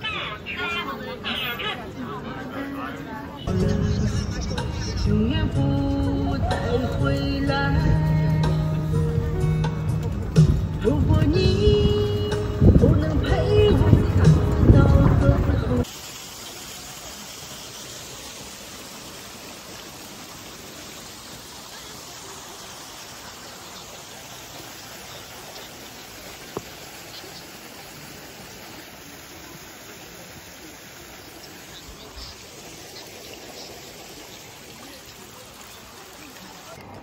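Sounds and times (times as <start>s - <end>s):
water rushing in stone channel: 4.6s - 37.0s.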